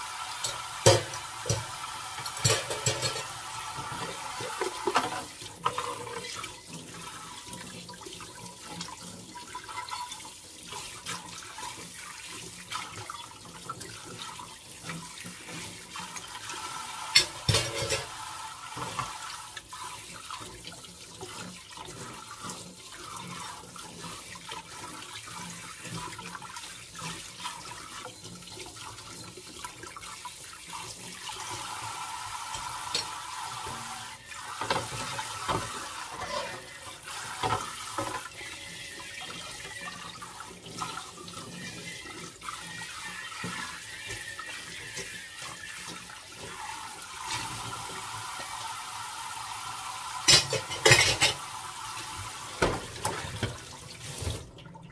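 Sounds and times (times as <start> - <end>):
faucet spray running onto dishes: 0.0 - 54.5.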